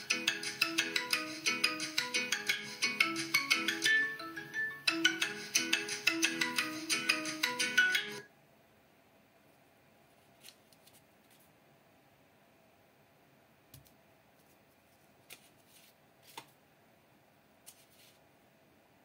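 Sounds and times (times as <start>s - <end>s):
paper rustling: 10.1s - 11.5s, 14.4s - 16.6s, 17.6s - 18.2s.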